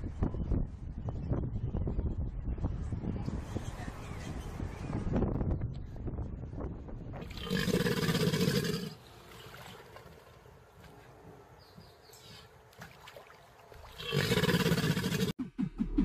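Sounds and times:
crocodile growling: 7.2 - 9.0, 14.0 - 15.3.

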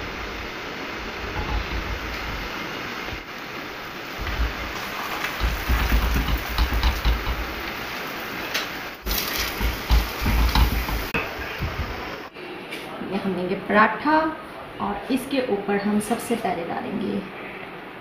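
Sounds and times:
bread sizzling in ghee: 1.2 - 12.3.

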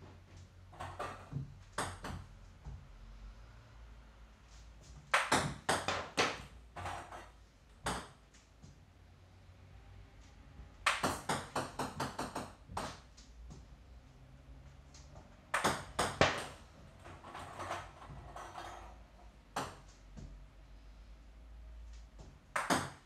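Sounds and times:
ping-pong ball bouncing: 0.8 - 2.3, 5.1 - 7.2, 7.8 - 8.2, 10.8 - 13.0, 15.5 - 16.6, 19.5 - 20.0, 22.5 - 23.0
ping-pong ball clicks: 10.9 - 13.0.

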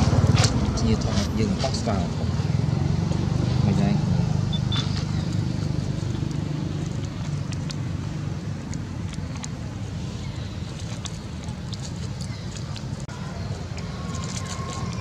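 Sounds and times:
low engine-like rumble: 0.0 - 15.0
monkey walking over dry leaves: 10.6 - 15.0.

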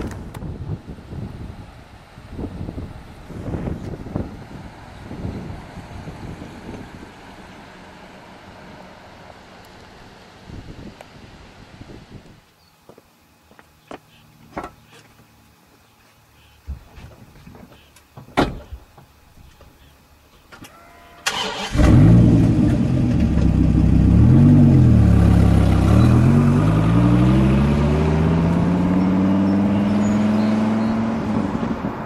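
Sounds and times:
car engine starting and accelerating: 21.2 - 32.0.

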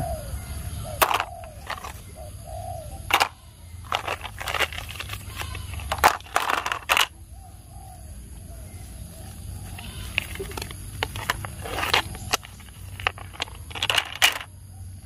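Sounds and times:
dove cooing: 0.0 - 15.0
plastic toy track pieces clattering: 1.0 - 2.0, 3.1 - 7.2, 9.8 - 14.5.

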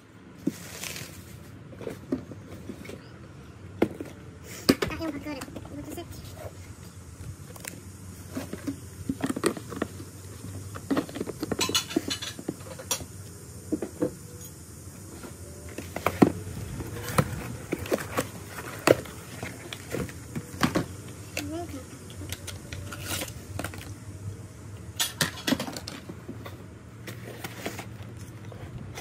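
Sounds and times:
handling cardboard packaging: 0.3 - 4.4, 15.1 - 24.2, 25.6 - 29.0.

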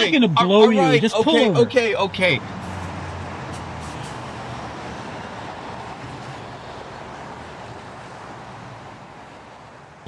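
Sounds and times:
car engine and tyres on pavement: 0.0 - 10.0.

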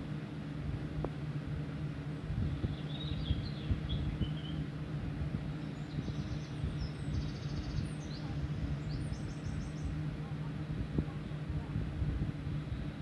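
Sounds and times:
low hum: 0.0 - 13.0
faint high chirping and trills: 2.4 - 4.7, 5.5 - 10.3.

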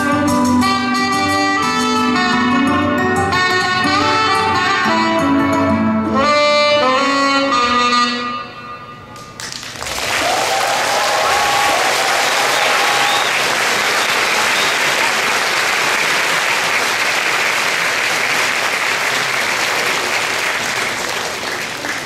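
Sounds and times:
audience applauding: 9.4 - 22.0.

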